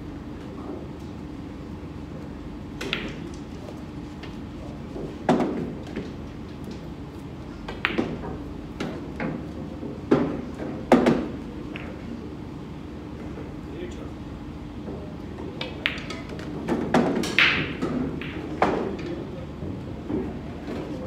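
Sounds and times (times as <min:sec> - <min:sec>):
steady low hum: 0:00.0 - 0:21.0
pool balls clacking: 0:15.6 - 0:19.2.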